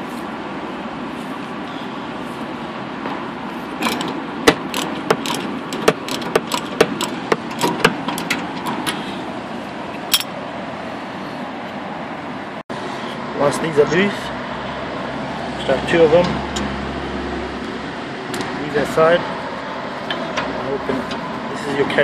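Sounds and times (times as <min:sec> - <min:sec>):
ratchet clicking: 0:03.8 - 0:09.0.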